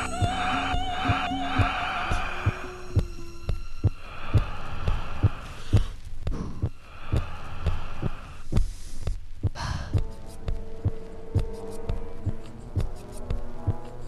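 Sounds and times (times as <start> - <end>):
humming electronic tones: 0.0 - 5.4, 10.0 - 14.0
heartbeat-like low thump: 0.2 - 13.8.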